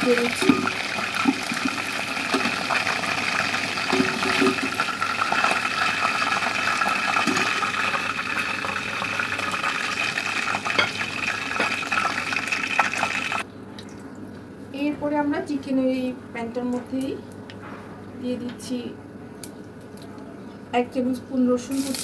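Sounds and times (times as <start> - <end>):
chicken deep-frying in hot oil: 0.0 - 13.4, 21.6 - 22.0.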